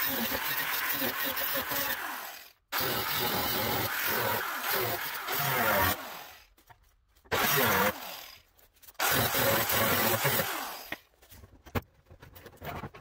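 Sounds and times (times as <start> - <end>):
angle grinder cutting steel: 0.0 - 6.4, 7.3 - 11.0.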